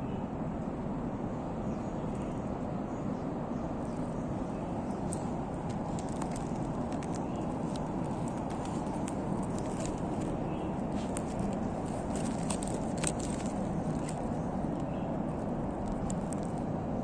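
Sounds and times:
low background rumble: 0.0s - 17.0s
faint irregular clicks: 4.9s - 16.8s.

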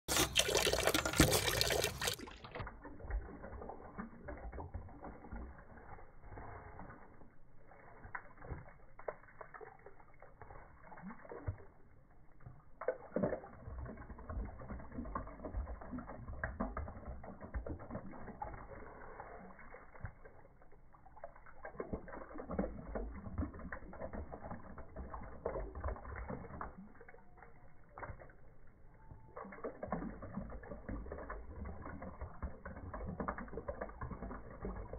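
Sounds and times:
dog snapping and lapping water: 0.0s - 34.9s
water splashing and dripping: 0.0s - 34.9s
wet clicks and sloshing: 0.0s - 34.9s.

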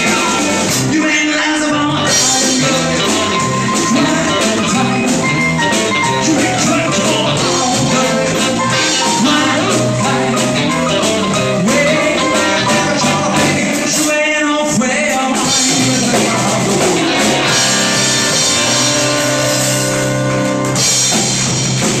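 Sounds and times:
man singing lead vocal: 0.0s - 19.7s
rock band playing: 0.0s - 22.0s.

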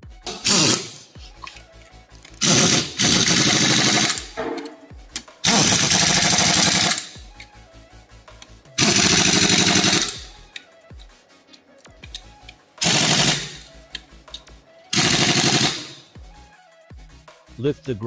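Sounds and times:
pneumatic impact wrench hammering: 0.2s - 1.6s, 2.4s - 7.5s, 8.8s - 10.4s, 12.0s - 13.7s, 14.3s - 16.1s.

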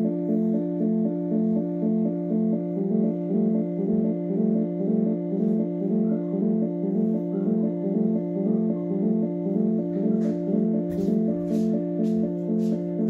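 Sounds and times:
electronic keyboard siren chord: 0.0s - 13.0s.

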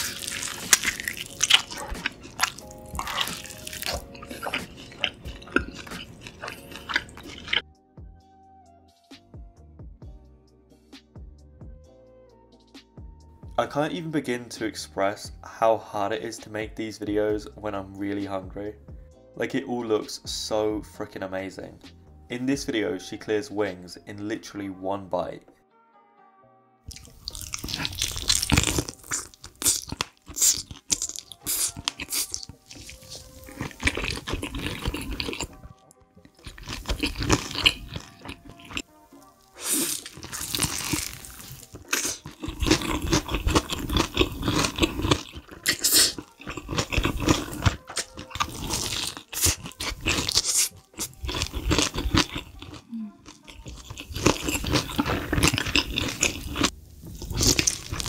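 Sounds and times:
crunching fried chicken: 0.0s - 7.6s, 26.9s - 58.0s
wet chewing: 0.0s - 7.6s, 26.9s - 58.0s.

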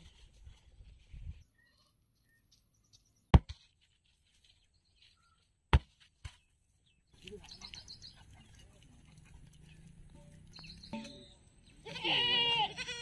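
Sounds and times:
faint bird chirps: 1.4s - 3.3s, 4.7s - 5.5s.

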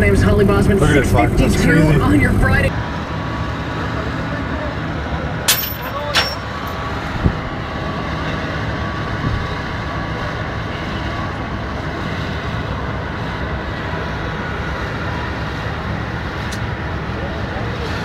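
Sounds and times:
strong wind on microphone: 6.9s - 7.7s.

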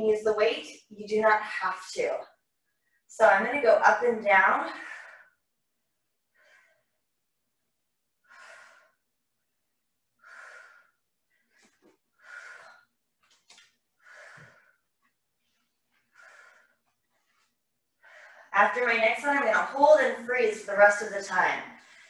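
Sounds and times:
woman breathing: 4.5s - 7.4s, 8.1s - 18.6s, 21.7s - 22.0s.

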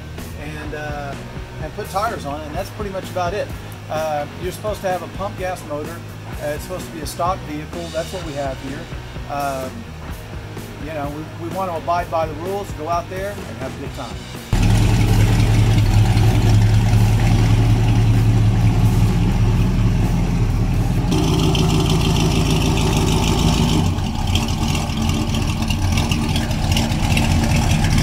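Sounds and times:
pickup engine rumbling: 14.3s - 28.0s.

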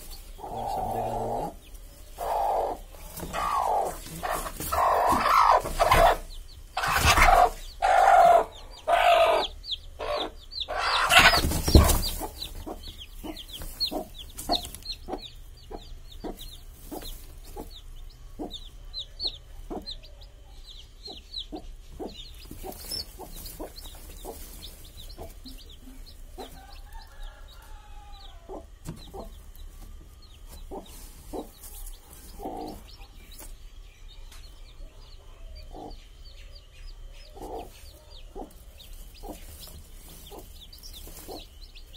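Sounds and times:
chicks peeping: 0.0s - 41.9s
hen clucking softly: 0.3s - 29.4s.

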